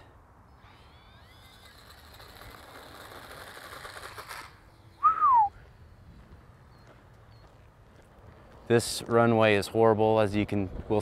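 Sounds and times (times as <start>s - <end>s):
electric motors and propellers whining: 0.0s - 5.0s
downward gliding whistle: 5.0s - 5.6s.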